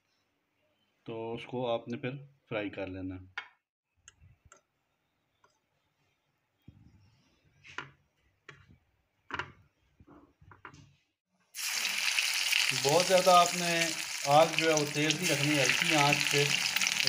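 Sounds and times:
hot oil sizzling: 11.6 - 17.0.

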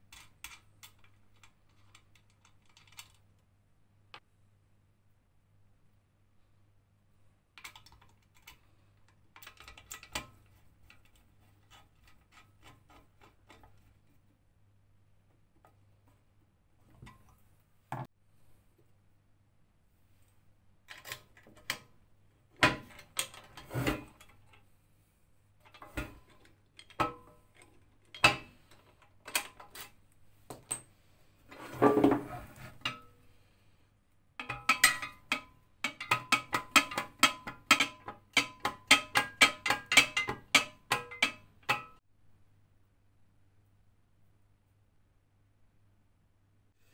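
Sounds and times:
metal clicks and knocks: 7.6 - 13.9, 34.4 - 42.0.

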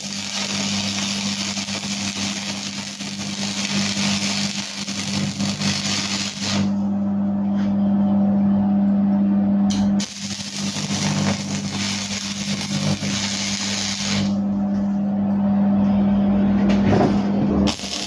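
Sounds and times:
welding arc crackling hiss: 0.0 - 6.7, 9.7 - 14.4, 17.7 - 18.0
steady low hum: 0.2 - 18.0.

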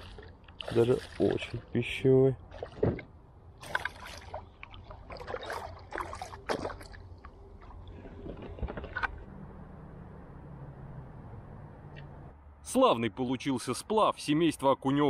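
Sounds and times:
water splashing: 0.0 - 9.2.

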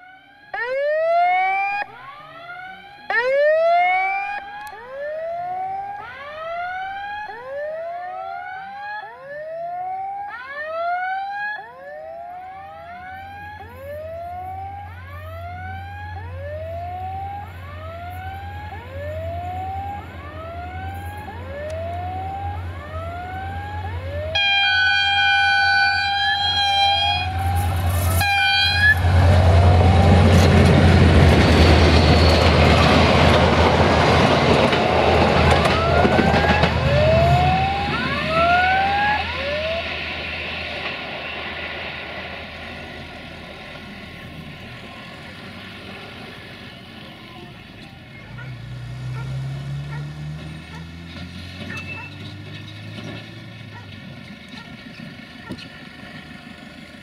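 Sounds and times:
train engine and wheels rumbling: 12.0 - 57.0
electronic warning tone whooping: 13.0 - 33.0, 35.4 - 40.0
locomotive horn: 16.6 - 33.3, 35.4 - 39.8.

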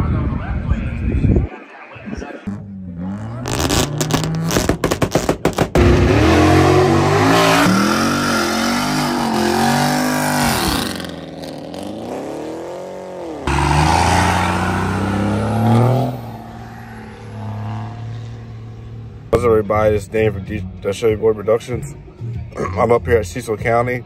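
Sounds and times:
car engines revving hard: 2.4 - 19.4.

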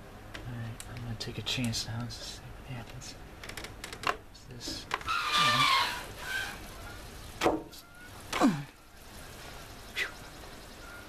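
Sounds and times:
sliding window squeaking: 4.8 - 8.3.

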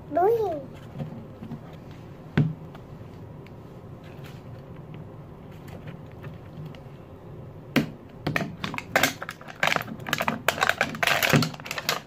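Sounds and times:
plastic wrapping crinkling: 8.7 - 12.0.

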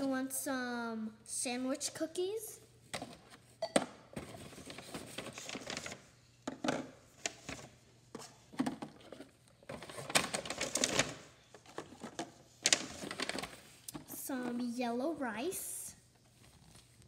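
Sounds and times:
paper bag rustling: 4.3 - 6.0, 9.7 - 13.8.

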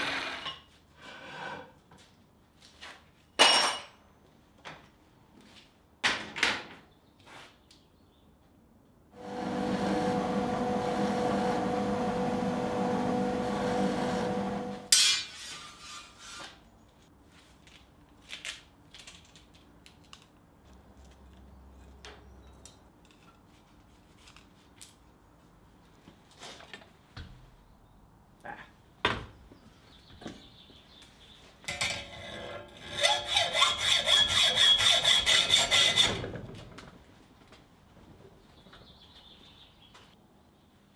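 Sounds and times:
drill motor hum and whine: 9.2 - 14.9.

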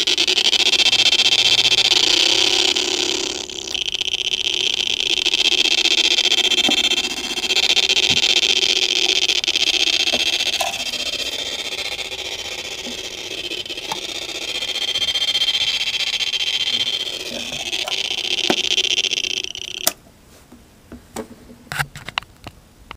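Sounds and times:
high electronic toy drone: 0.0 - 20.0.

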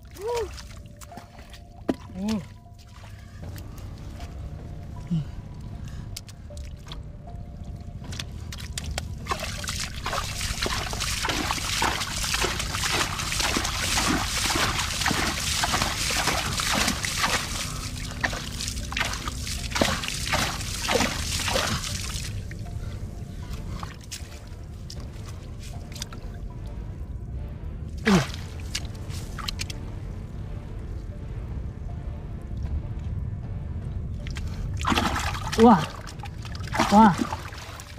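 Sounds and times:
hands splashing in muddy water: 8.0 - 22.4, 34.2 - 37.9.

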